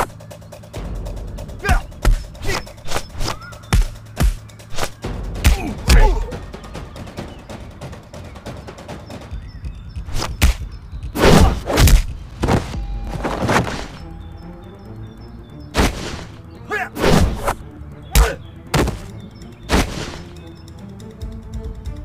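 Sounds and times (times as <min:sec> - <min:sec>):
action background music: 0:00.0 - 0:22.0
swooshes: 0:17.0 - 0:17.6.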